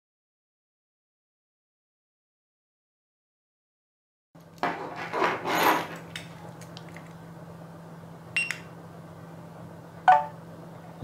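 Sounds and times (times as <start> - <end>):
steady low hum: 6.0 - 11.0.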